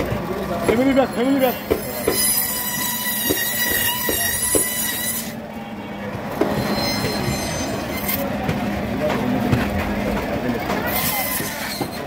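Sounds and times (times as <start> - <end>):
band saw screeching through bone: 1.4 - 5.4, 6.5 - 8.2, 10.9 - 12.0.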